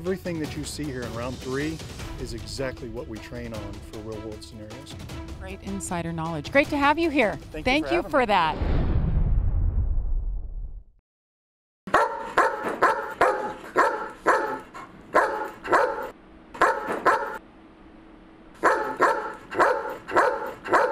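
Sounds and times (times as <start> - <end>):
low rumble: 7.4 - 11.0
dog barking: 11.9 - 17.4, 18.6 - 20.9.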